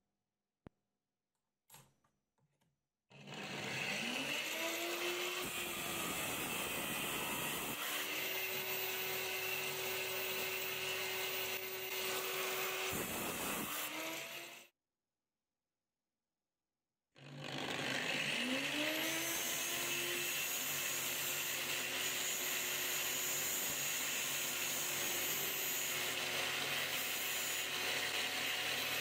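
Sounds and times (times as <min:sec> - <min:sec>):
angle grinder grinding metal: 0:03.3 - 0:14.6, 0:17.7 - 0:29.0.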